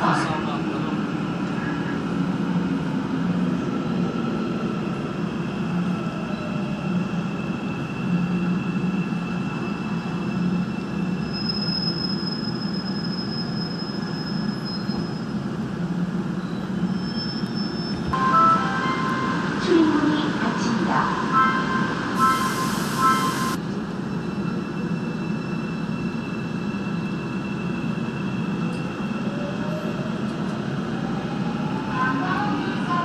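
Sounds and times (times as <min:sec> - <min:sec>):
train running noise: 0:00.0 - 0:33.0
high brake squeal: 0:09.0 - 0:15.4, 0:16.4 - 0:18.2, 0:22.2 - 0:23.6.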